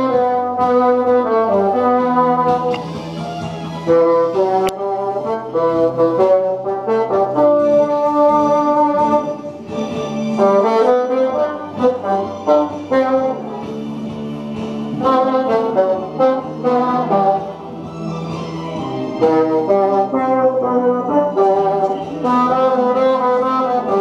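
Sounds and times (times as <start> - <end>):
bassoon melody: 0.0 - 24.0.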